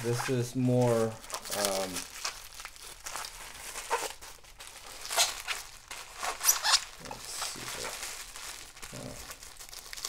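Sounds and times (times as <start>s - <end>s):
bubble wrap rustling and crinkling: 0.0s - 10.0s.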